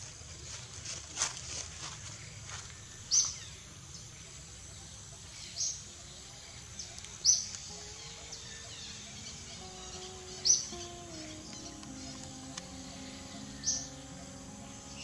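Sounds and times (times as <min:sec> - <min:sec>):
outdoor background noise: 0:00.0 - 0:15.0
bird chirping: 0:02.8 - 0:15.0.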